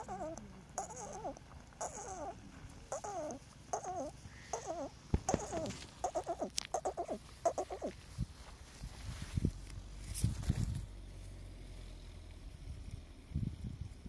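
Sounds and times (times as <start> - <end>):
parakeets calling: 0.0 - 7.9.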